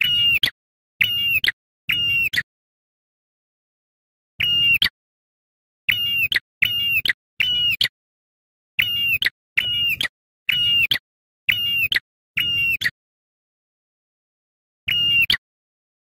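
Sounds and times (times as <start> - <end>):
bird whistled calls: 0.0 - 2.5, 5.9 - 7.9, 8.8 - 13.0, 14.9 - 15.4.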